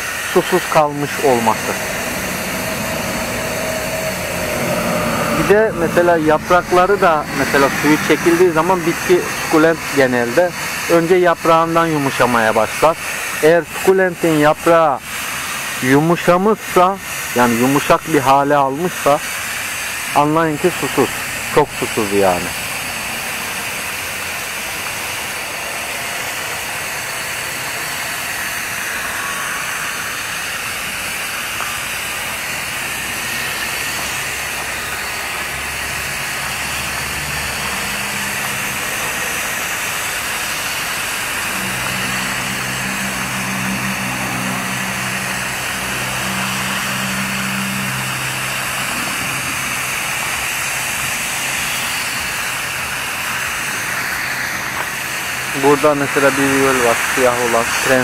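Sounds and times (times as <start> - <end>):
low hum: 0.0 - 11.5, 22.5 - 57.5
spray nozzle hissing: 0.0 - 58.0.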